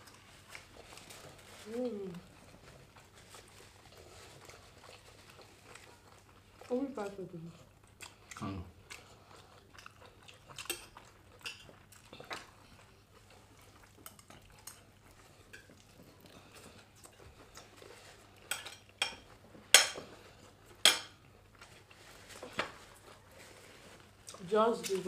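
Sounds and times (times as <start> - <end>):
metal spoons clinking on plates: 18.5 - 19.2.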